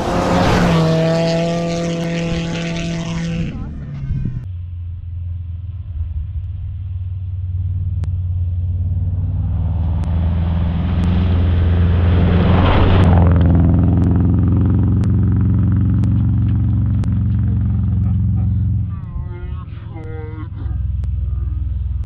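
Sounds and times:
rally car passing: 0:00.0 - 0:04.5, 0:07.6 - 0:22.0
sharp ticks: 0:13.0 - 0:22.0.

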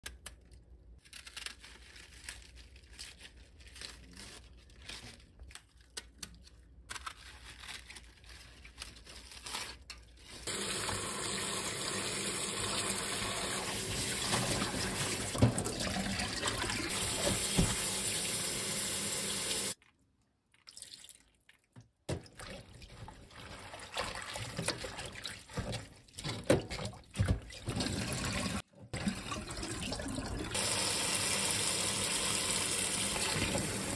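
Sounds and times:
water splashing and sloshing: 0:12.2 - 0:18.3, 0:20.5 - 0:30.6.

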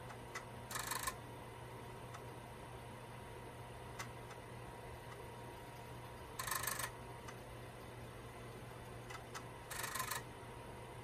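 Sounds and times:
floppy drive clicks: 0:00.0 - 0:01.3, 0:03.9 - 0:08.0, 0:08.7 - 0:10.3
steady low hum: 0:00.0 - 0:11.0.

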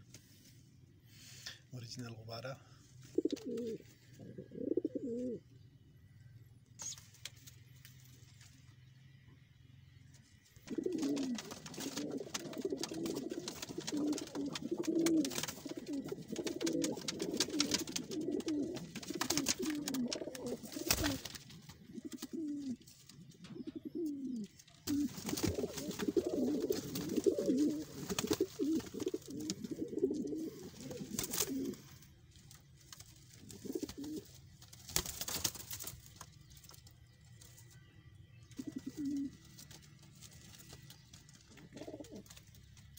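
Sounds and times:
pigeons cooing: 0:03.0 - 0:05.5, 0:10.5 - 0:32.1, 0:33.4 - 0:34.4, 0:38.5 - 0:39.8, 0:40.9 - 0:42.9
clicks and scratches: 0:10.6 - 0:22.9.

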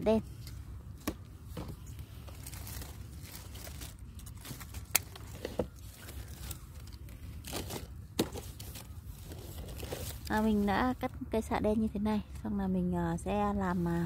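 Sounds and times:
rustling leaves: 0:01.8 - 0:11.0.

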